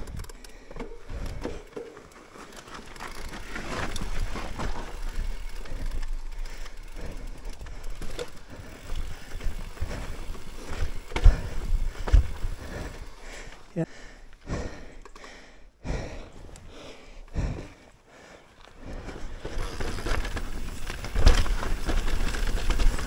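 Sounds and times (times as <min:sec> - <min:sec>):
bike rattles and knocks: 0:00.0 - 0:13.6, 0:18.8 - 0:23.0
bike tyres rumbling over rocks: 0:00.0 - 0:13.6, 0:18.9 - 0:23.0.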